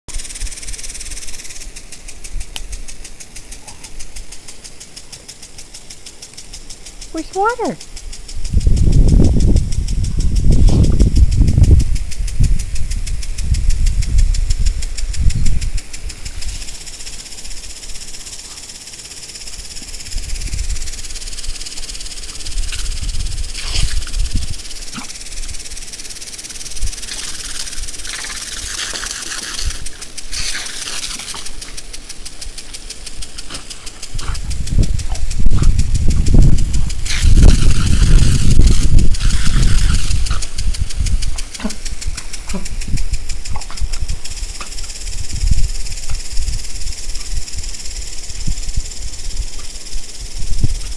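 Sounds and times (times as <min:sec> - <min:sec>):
lawn sprinkler hissing: 0:00.1 - 0:50.9
water spatters: 0:15.8 - 0:45.3.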